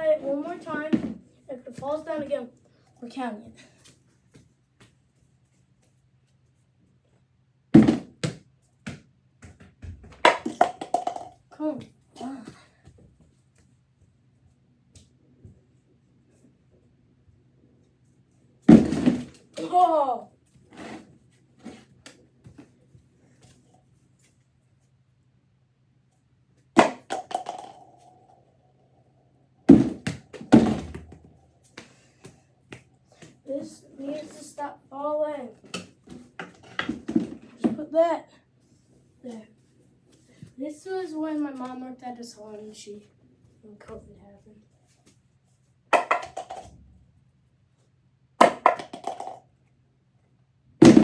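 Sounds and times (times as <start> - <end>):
plastic object bouncing on floor: 7.8 - 11.4, 26.8 - 28.0, 29.7 - 31.3, 45.9 - 46.8, 48.4 - 49.4
football thudding against objects: 18.7 - 19.4, 29.7 - 31.3.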